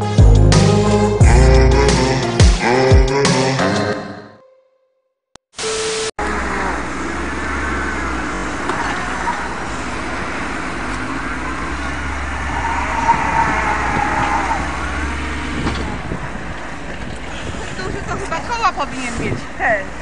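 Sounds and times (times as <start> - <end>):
truck diesel engine under load: 6.2 - 20.0
wheels spinning on snow: 6.2 - 20.0.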